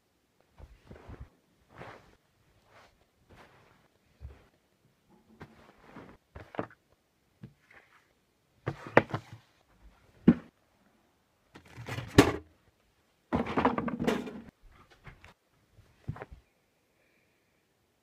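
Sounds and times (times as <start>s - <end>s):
household objects clattering: 13.3s - 14.5s.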